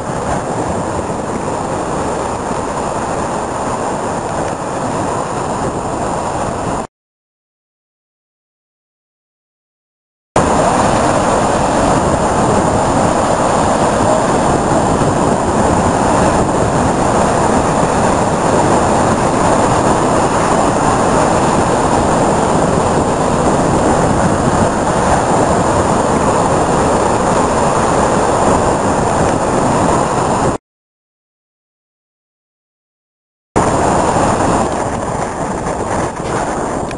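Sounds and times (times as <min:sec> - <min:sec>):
heavy surf breaking over rocks: 0:00.0 - 0:06.9, 0:10.4 - 0:30.6, 0:33.6 - 0:36.9.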